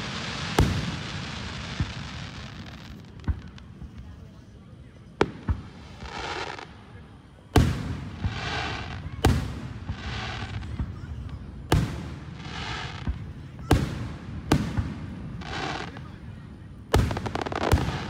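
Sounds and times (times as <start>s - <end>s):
firework shells booming: 5.2s - 6.7s, 7.4s - 16.0s, 16.9s - 18.0s.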